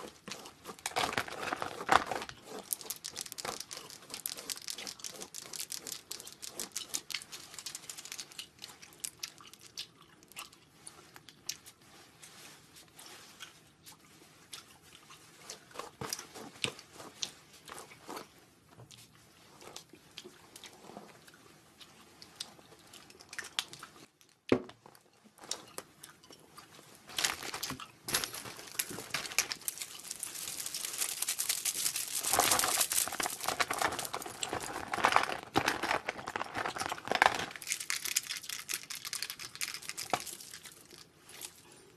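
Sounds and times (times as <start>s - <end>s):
plastic pouches crinkling: 0.0s - 9.7s, 27.1s - 41.6s.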